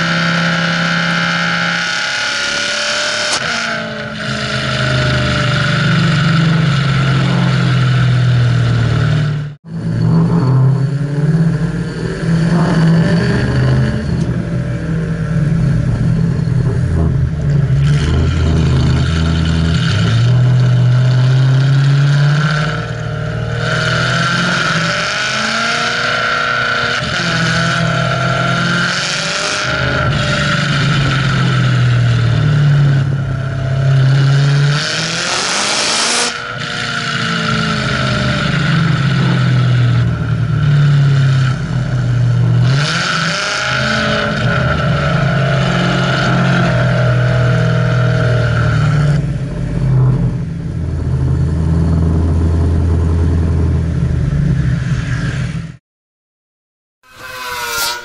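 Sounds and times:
car engine revving: 0.0 - 55.8
high whine: 2.5 - 42.8, 57.0 - 58.0.

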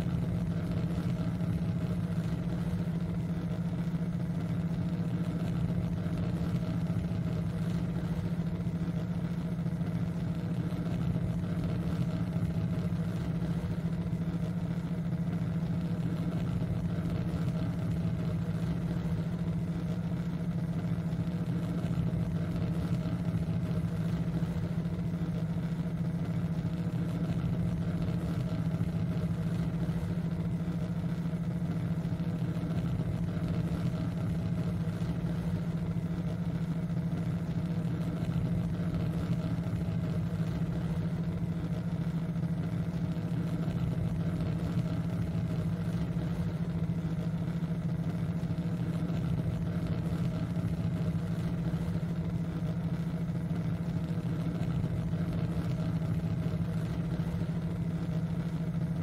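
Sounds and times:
low synthesized hum: 0.0 - 59.0.

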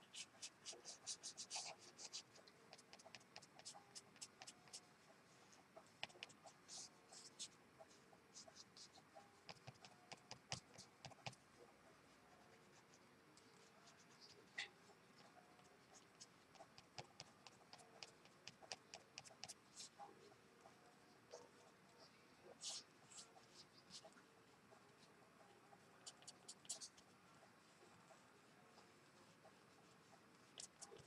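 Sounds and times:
pen scratching on paper: 0.1 - 4.9, 5.9 - 11.4, 13.8 - 20.1, 22.6 - 24.2, 25.8 - 27.1, 28.8 - 31.0.

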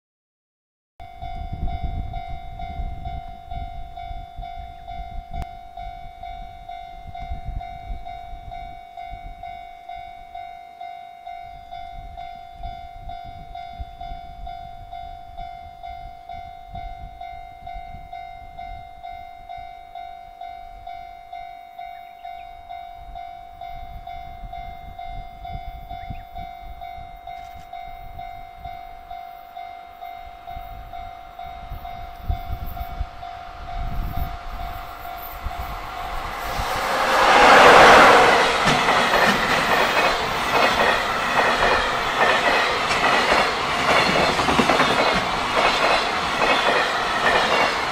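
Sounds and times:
level-crossing warning bell: 1.0 - 47.9
approaching train rumble: 20.5 - 47.9.

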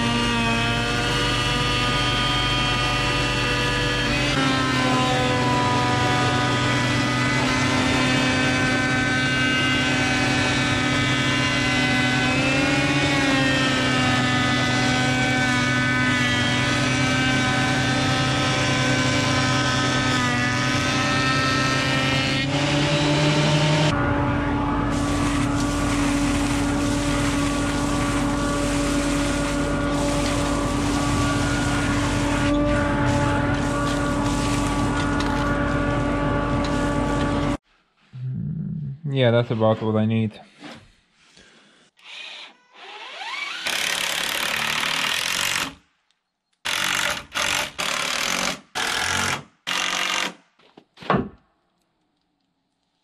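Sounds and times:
thickness planer running: 0.0 - 37.6.

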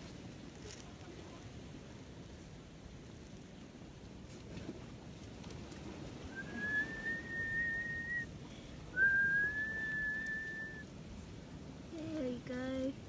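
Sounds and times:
person whistling high notes: 6.4 - 8.3, 9.0 - 10.8.

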